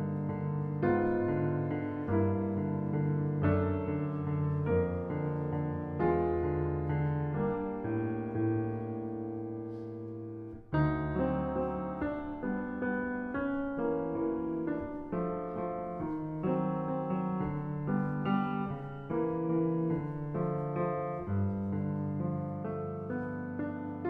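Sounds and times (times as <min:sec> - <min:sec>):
solo piano classical piece: 0:00.0 - 0:24.0.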